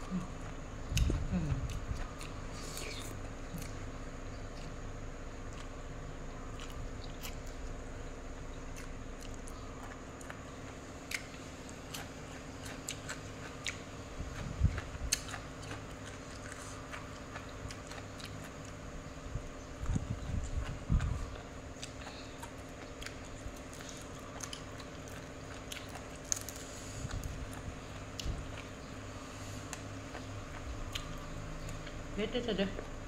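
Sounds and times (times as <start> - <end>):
chewing and biting food: 0.0 - 32.2
steady low hum: 0.0 - 33.0.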